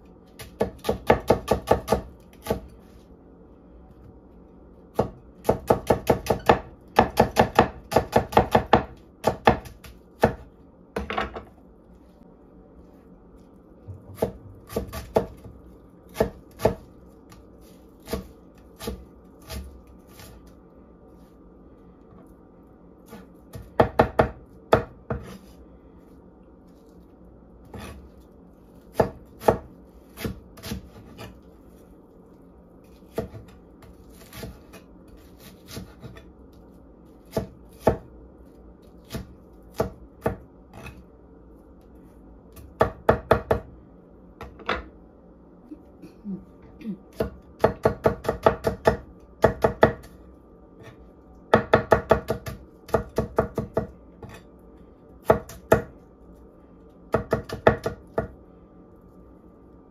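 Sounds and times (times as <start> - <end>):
knife chopping on wooden board: 5.0 - 10.4, 13.9 - 16.9, 23.1 - 25.4, 28.9 - 31.3, 33.1 - 34.8, 47.2 - 50.1, 51.5 - 54.4, 57.1 - 58.3.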